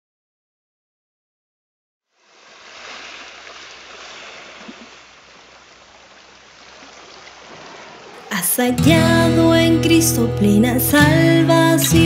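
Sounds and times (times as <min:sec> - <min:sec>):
flowing water rushing: 0:02.2 - 0:08.8.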